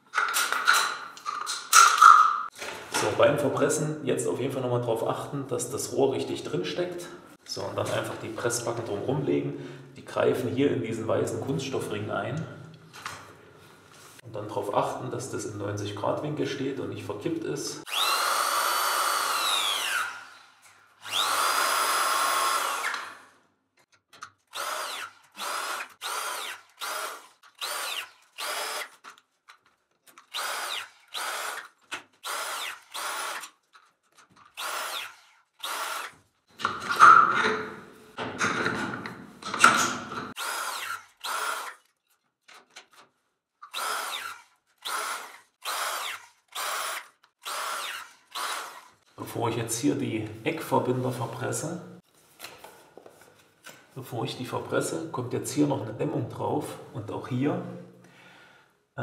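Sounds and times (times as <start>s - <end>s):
press tool whirring: 17.9s - 20.3s, 21.0s - 23.2s.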